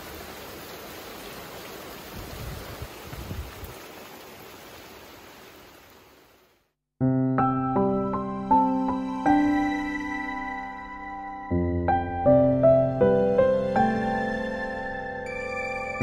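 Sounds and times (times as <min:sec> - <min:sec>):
rain pouring down: 0:00.0 - 0:06.6
soft instrumental music: 0:07.0 - 0:16.0.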